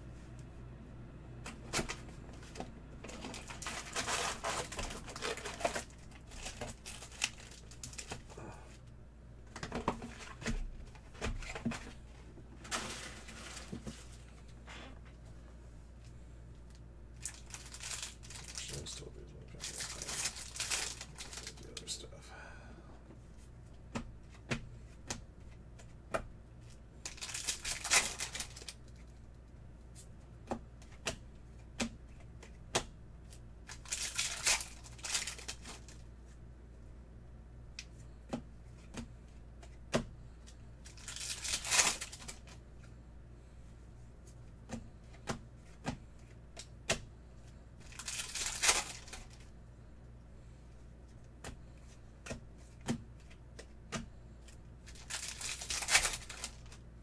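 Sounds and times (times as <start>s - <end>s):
card packs tearing: 3.1s - 8.3s, 17.2s - 21.9s, 27.1s - 28.8s, 33.7s - 36.0s, 40.9s - 42.5s, 47.9s - 49.4s, 54.9s - 56.8s.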